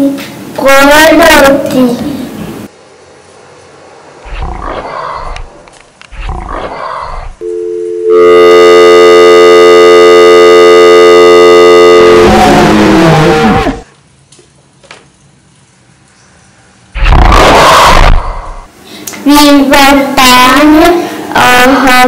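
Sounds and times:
tiger roaring: 4.2s - 7.4s, 12.1s - 13.8s, 17.0s - 18.7s
loud steady buzzing tone: 7.4s - 13.9s.

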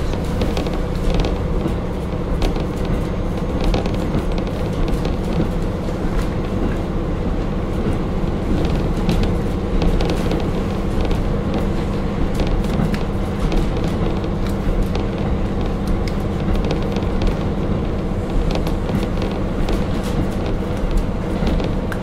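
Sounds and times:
clicks and rattles: 0.0s - 6.9s, 7.8s - 22.0s
diesel engine droning: 0.0s - 22.0s.

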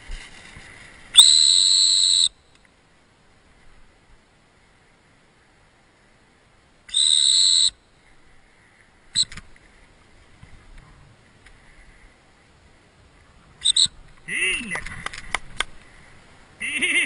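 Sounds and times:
dog-training whistle blasts: 1.2s - 2.4s, 6.9s - 7.8s.

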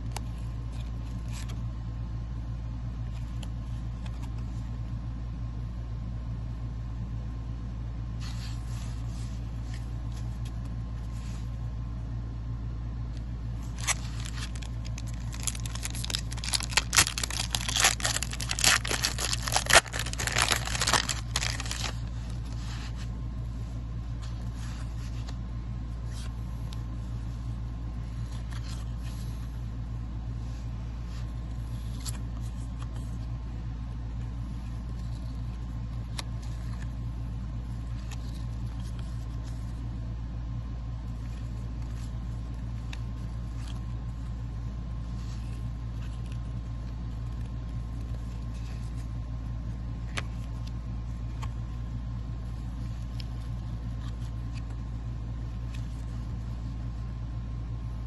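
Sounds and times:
low hum: 0.0s - 58.0s
foil wrapper tearing and crinkling: 13.6s - 22.1s
cards clicking: 13.7s - 22.0s.

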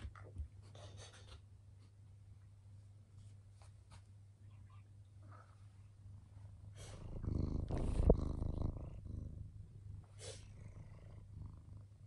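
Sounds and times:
cat purring: 5.2s - 12.0s.

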